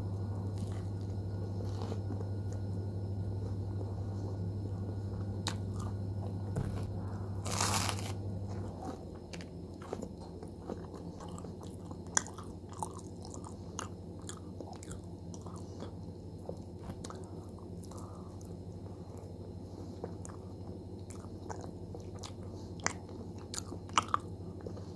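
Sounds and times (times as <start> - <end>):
crunchy bite: 6.6 - 8.2
chewing: 8.8 - 18.6, 20.0 - 24.9.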